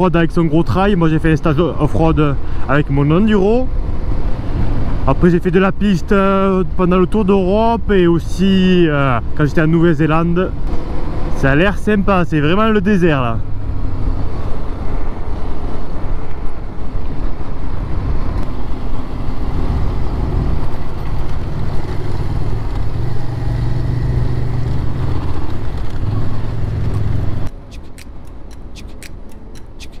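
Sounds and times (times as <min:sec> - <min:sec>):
regular ticking: 0:27.5 - 0:30.0.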